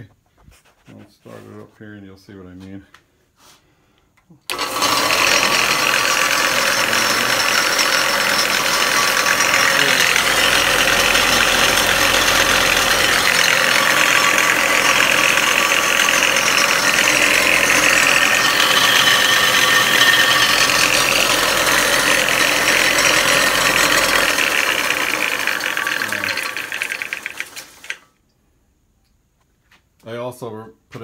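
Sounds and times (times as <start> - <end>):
belt sander running: 4.5 - 28.0.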